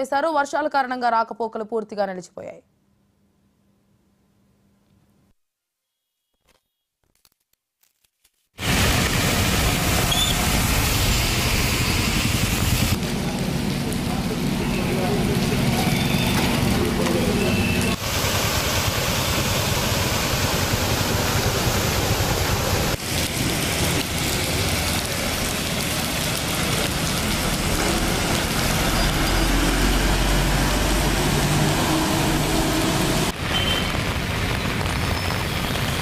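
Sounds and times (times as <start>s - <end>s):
heavy rain pouring: 8.6s - 36.0s.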